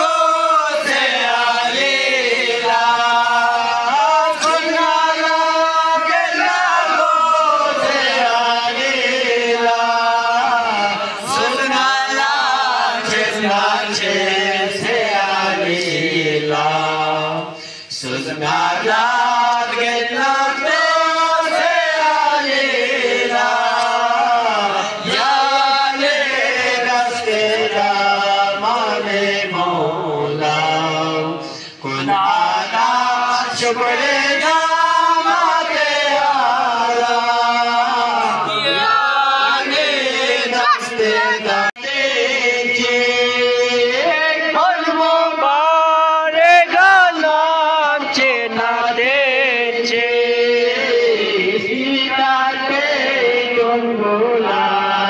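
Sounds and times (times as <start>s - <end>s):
men chanting unaccompanied: 0.0s - 55.0s
boy singing along: 9.7s - 15.0s, 31.9s - 42.0s.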